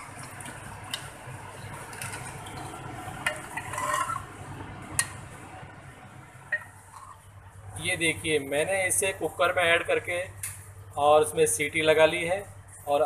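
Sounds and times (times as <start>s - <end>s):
ladle scraping pot: 1.9s - 4.3s.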